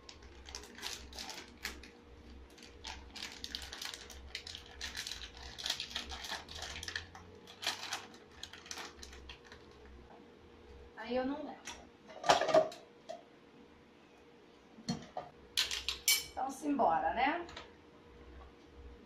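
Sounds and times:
plastic packet crinkling: 0.0s - 10.0s
faint steady hum: 0.0s - 19.0s.

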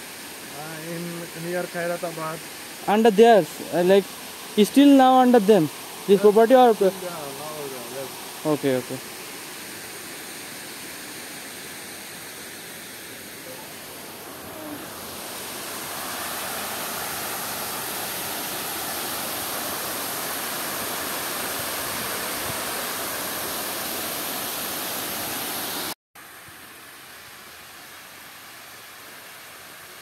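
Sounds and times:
water rushing down a dam spillway: 0.0s - 9.0s, 13.3s - 26.0s.

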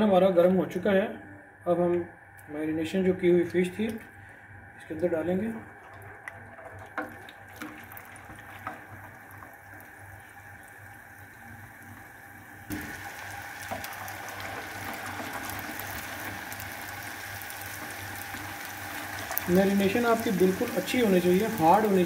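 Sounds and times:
fish deep-frying in sizzling oil: 6.0s - 22.0s.

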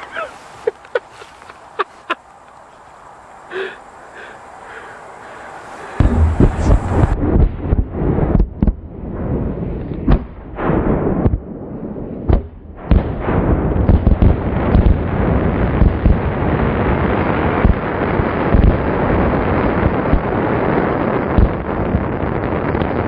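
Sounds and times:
fireworks bangs and bursts: 5.8s - 11.6s, 12.2s - 23.0s.

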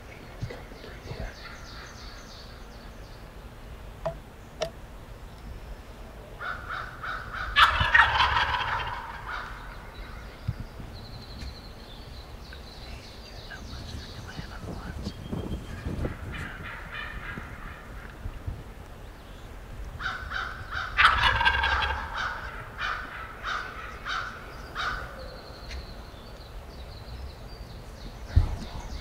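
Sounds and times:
faint bird calls: 0.0s - 29.0s
turkey gobbling: 6.4s - 9.9s, 20.0s - 25.1s.

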